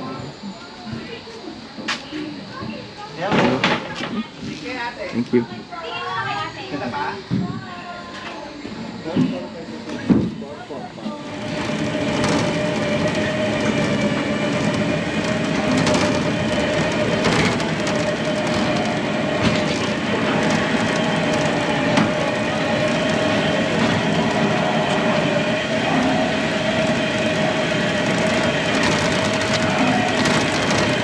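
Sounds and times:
machinery whine: 8.1 - 31.0
continuous rattling: 11.1 - 31.0.

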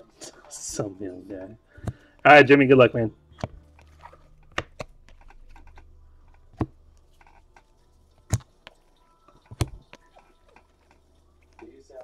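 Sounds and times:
cards flipping clicks: 3.4 - 11.7.

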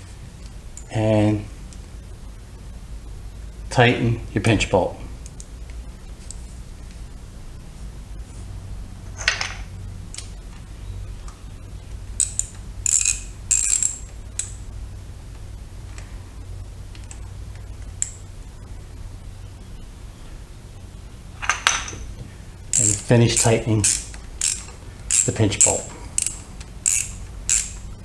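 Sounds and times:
ratchet wrench clicking: 12.2 - 14.6, 22.7 - 27.9.

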